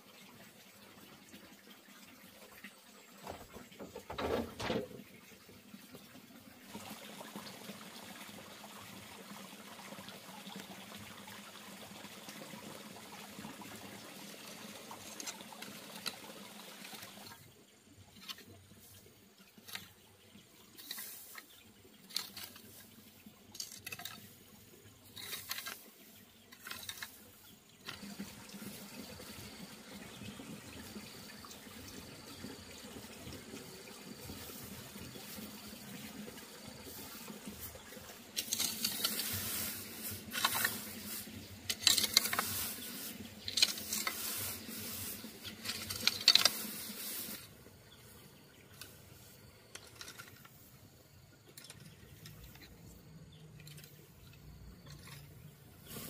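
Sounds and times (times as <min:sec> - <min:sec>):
grass mulch rustling as raked: 0:20.8 - 0:27.3, 0:36.8 - 0:48.2, 0:54.9 - 0:56.0.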